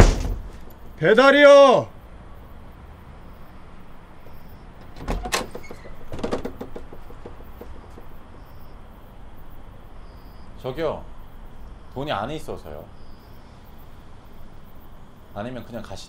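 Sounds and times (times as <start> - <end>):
door thump: 0.0 - 0.6, 4.8 - 8.6
rattling clatter of clicks: 4.8 - 8.6.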